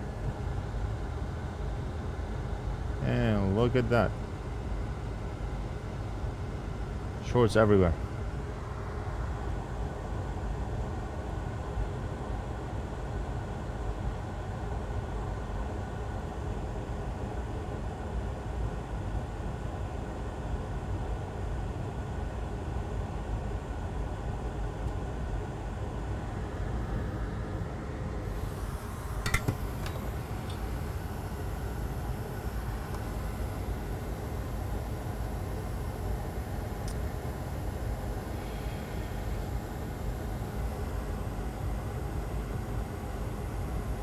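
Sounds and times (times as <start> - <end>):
fan running: 24.5 - 44.0.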